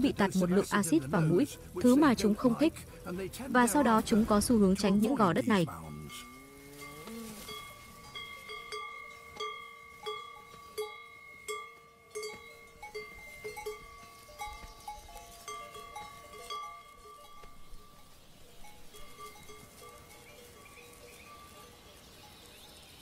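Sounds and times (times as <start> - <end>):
cow bells clanking: 4.8 - 23.0.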